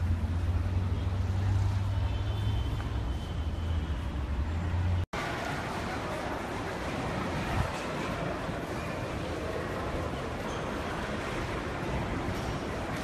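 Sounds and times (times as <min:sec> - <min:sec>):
traffic engines rumbling: 0:00.0 - 0:13.0.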